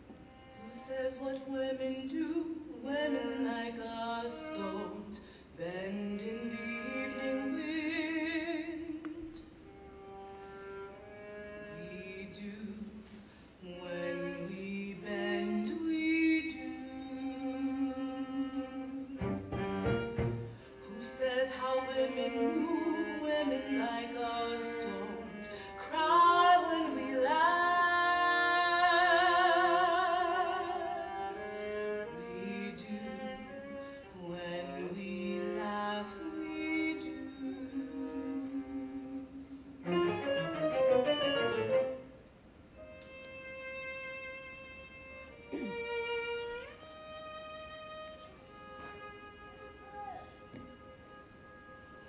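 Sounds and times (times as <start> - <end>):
bowed string quartet: 0.0 - 52.0
soprano singing with vibrato: 0.6 - 9.5, 11.8 - 19.4, 20.7 - 41.2.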